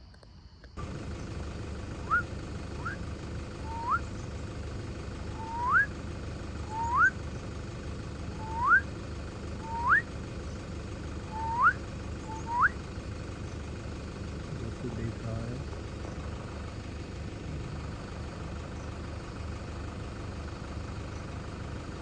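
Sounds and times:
steady low rumble: 0.8s - 22.0s
animal whistled whoop call: 2.1s - 3.0s, 3.7s - 4.0s, 5.4s - 5.9s, 6.7s - 7.2s, 8.4s - 8.9s, 9.6s - 10.1s, 11.3s - 12.8s.

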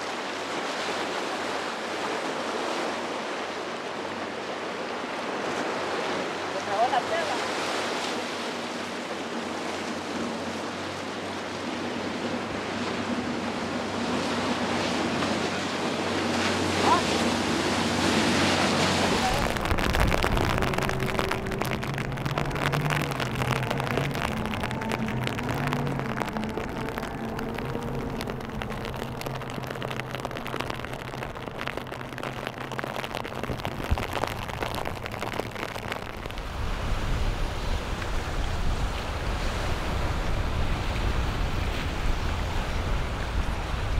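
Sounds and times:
churning water hiss: 0.0s - 43.9s
surf and breaking waves: 0.0s - 43.9s
low engine-like hum: 8.7s - 32.7s
wind on microphone: 11.8s - 43.9s.

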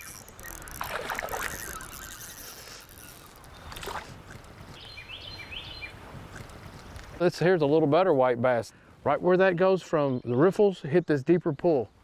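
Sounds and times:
fish splashing at water surface: 0.6s - 2.8s.

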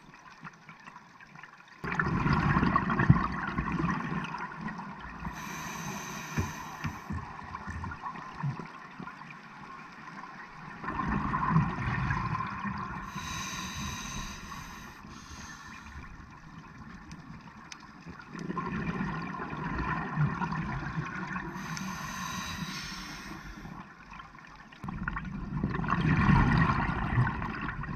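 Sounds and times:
gurgling exhaled bubbles: 1.8s - 8.7s, 10.7s - 17.0s, 18.2s - 22.6s, 24.8s - 27.9s
regulator hissing inhale: 5.3s - 7.2s, 13.0s - 16.1s, 21.5s - 23.8s.

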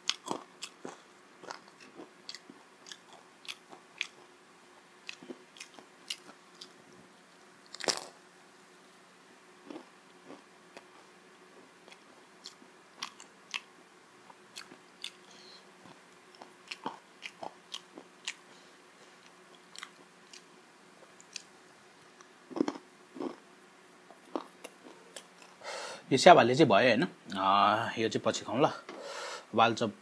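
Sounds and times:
crunchy chewing and biting: 0.0s - 6.8s, 7.6s - 8.2s, 9.6s - 23.5s, 24.1s - 25.6s.

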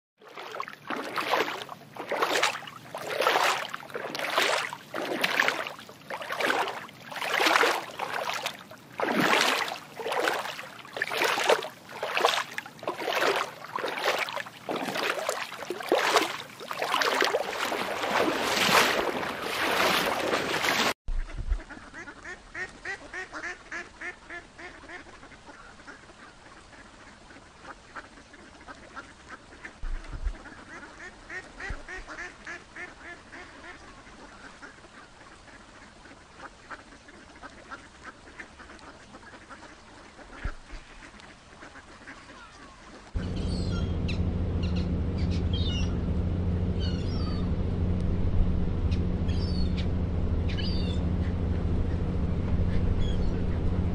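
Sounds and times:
waterfowl calling harshly: 0.3s - 20.9s, 30.4s - 46.0s, 46.8s - 47.5s, 49.2s - 49.9s, 50.5s - 52.0s.

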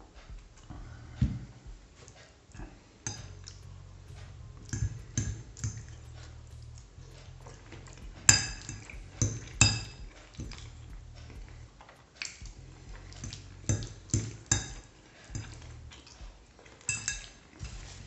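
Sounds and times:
fork clinking on ceramic plate: 16.9s - 17.4s.

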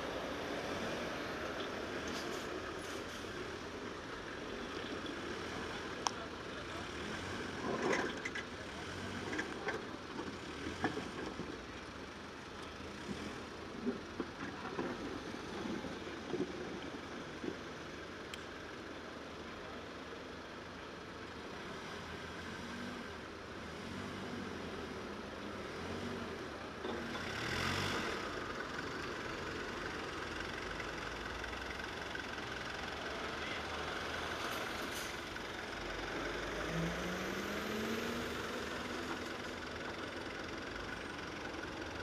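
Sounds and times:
forklift engine running: 25.2s - 42.0s.

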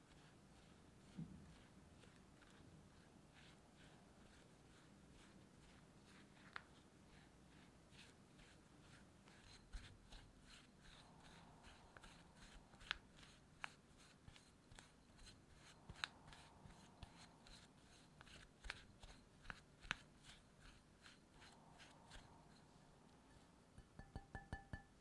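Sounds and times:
spatula scraping in glass bowl: 20.6s - 23.6s.

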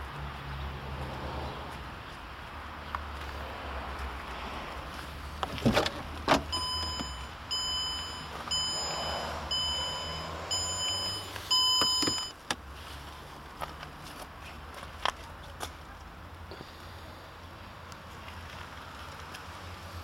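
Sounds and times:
car warning chime beeping: 6.5s - 12.4s.

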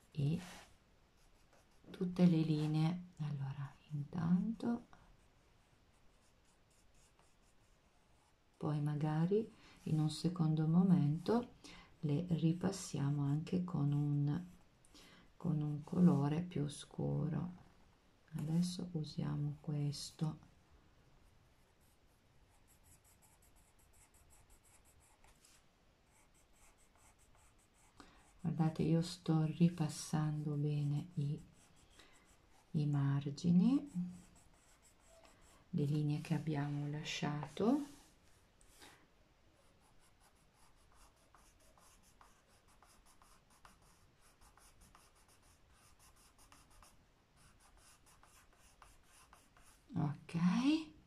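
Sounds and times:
pencil scratching on paper: 0.3s - 2.8s, 5.9s - 8.4s, 21.8s - 38.1s, 39.6s - 49.9s.

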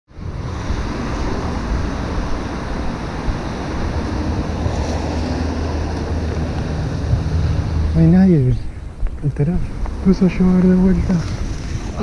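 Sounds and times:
traffic hiss on wet street: 0.1s - 8.5s, 9.3s - 12.0s
wind rumbling on microphone: 0.1s - 12.0s
steady rain: 9.7s - 12.0s.

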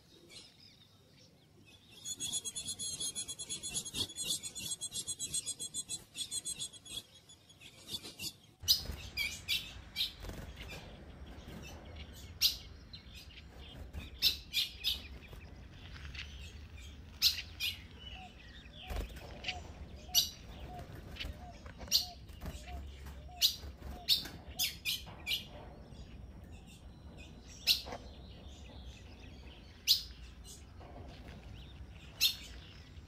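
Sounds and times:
bird chip calls: 2.0s - 10.2s.

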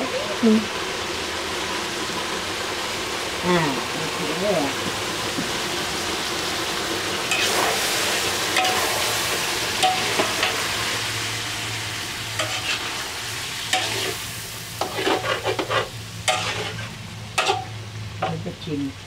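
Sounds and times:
stir-fry sizzling in a wok: 0.0s - 19.0s
spatula scraping a pan: 7.3s - 9.1s, 12.4s - 18.4s.

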